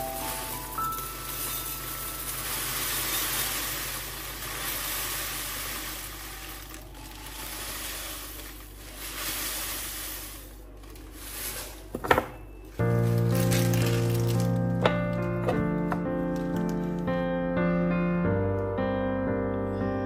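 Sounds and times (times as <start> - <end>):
cornflakes pattering against glass: 0.0 - 11.9, 13.0 - 14.8
plastic bag crinkling: 0.0 - 12.0, 12.8 - 15.4.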